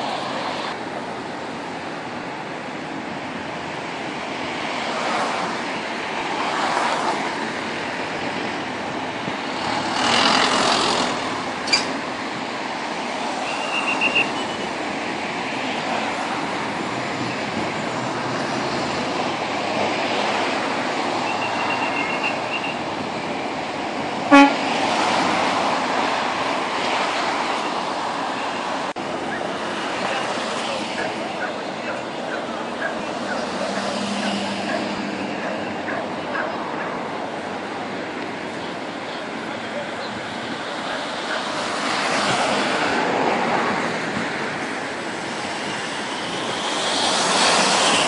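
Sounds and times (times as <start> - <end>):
cars and trucks passing: 0.0 - 48.0
short high beeps: 13.4 - 14.6, 21.2 - 22.8.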